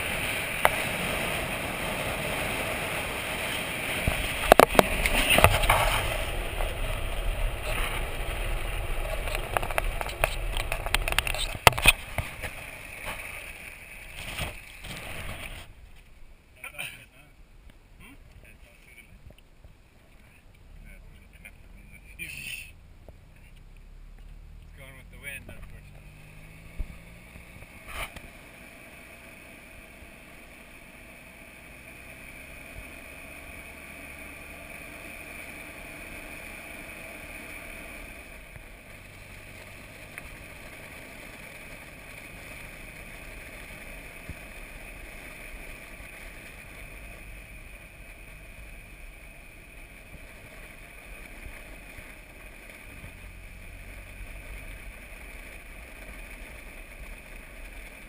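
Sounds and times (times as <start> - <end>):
tyre noise: 0.0 - 16.3
wind noise: 0.0 - 16.3
engine drone: 0.0 - 17.3, 20.2 - 58.0.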